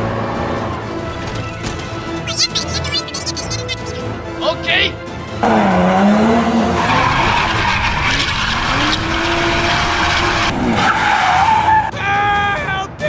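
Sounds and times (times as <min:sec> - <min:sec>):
cartoon engine sound: 0:02.1 - 0:04.1.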